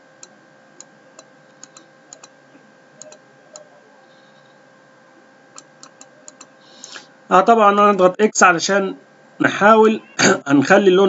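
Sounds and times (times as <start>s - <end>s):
faint steady hum: 0.0s - 11.0s
computer mouse clicking: 0.2s - 2.4s, 3.0s - 4.6s, 5.6s - 7.0s.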